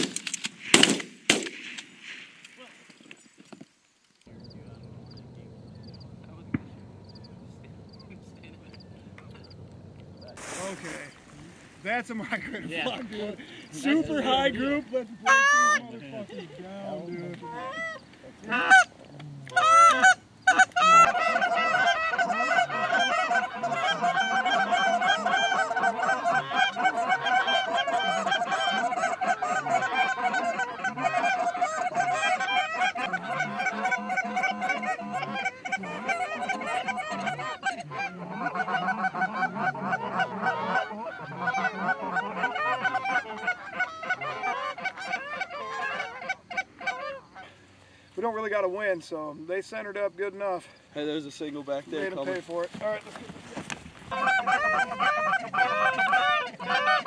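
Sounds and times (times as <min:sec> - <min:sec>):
goose call honks and clucks: 0:15.2 - 0:15.9, 0:17.2 - 0:47.6, 0:53.1 - 0:57.0.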